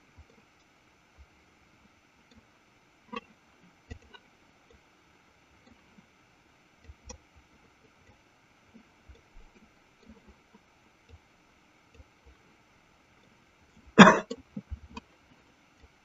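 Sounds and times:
faint clicks: 0.1 - 16.0
person coughing: 14.0 - 14.4.

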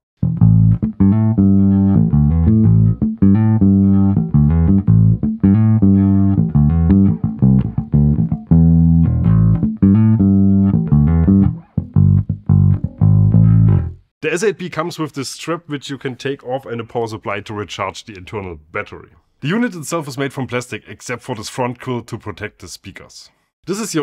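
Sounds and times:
plucked bass guitar through amp: 0.2 - 14.1.

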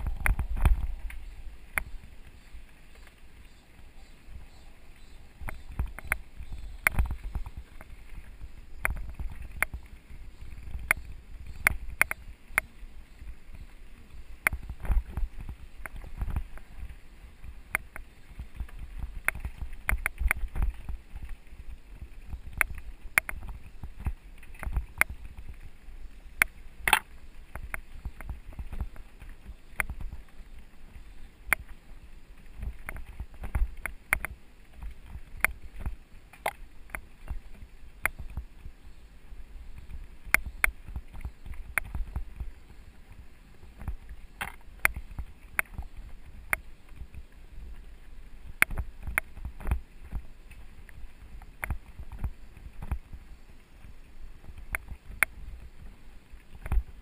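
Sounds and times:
bike knocking and rattling: 0.0 - 2.4, 4.3 - 12.8, 14.4 - 31.8, 43.6 - 47.2
low rumble: 0.0 - 2.7.

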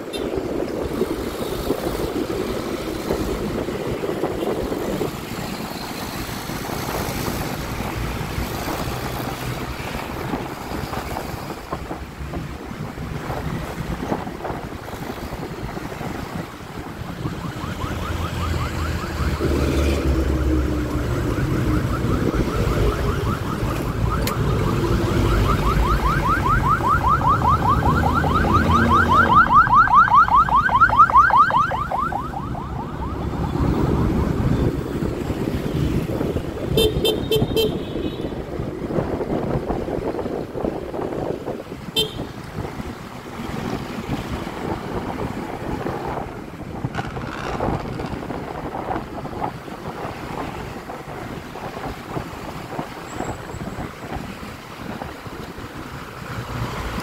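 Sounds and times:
road traffic: 0.0 - 57.0
wind rumble: 0.0 - 57.0
electronic siren sweeping up: 17.0 - 34.9.

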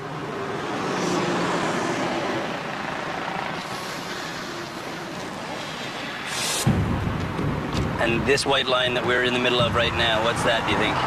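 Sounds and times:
city traffic rumble and hiss: 0.0 - 11.0
short sharp burst of noise: 5.7 - 7.0.

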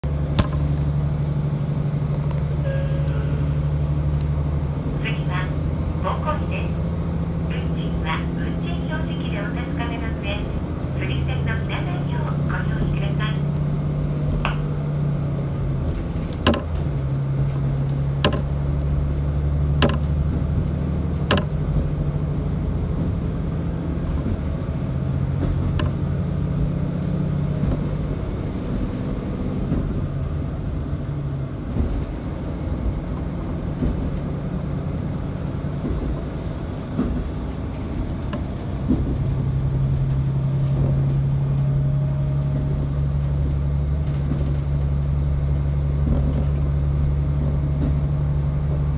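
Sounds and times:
diesel engine drone: 0.0 - 48.9
wheels clicking over rail joints: 15.8 - 22.0, 31.6 - 48.9.

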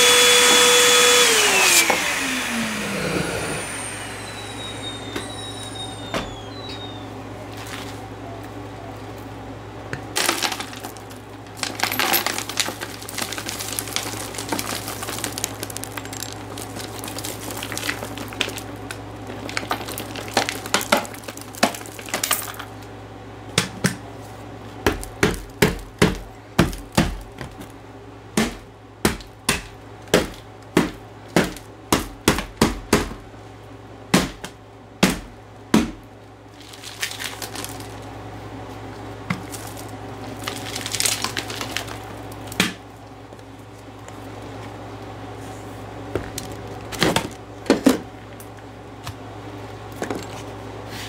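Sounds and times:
vacuum cleaner motor running: 0.0 - 7.3
debris rattling through nozzle: 10.2 - 22.6.

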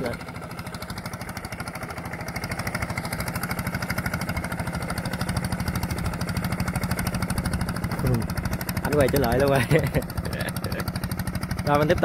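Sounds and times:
small engine running: 0.0 - 12.0.

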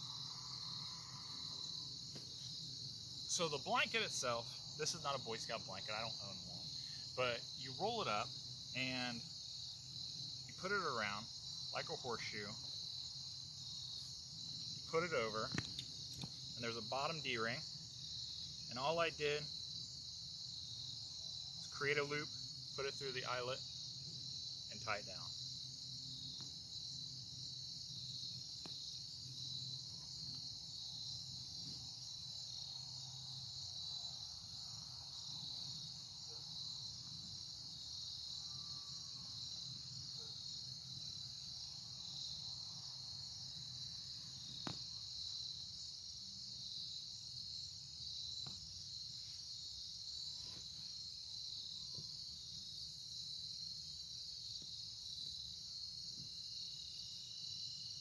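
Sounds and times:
crickets chirping: 0.0 - 58.0.

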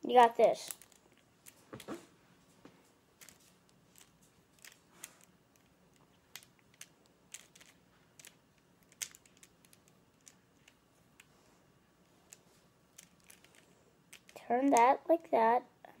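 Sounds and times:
plastic puzzle cube clicks: 6.3 - 11.3.

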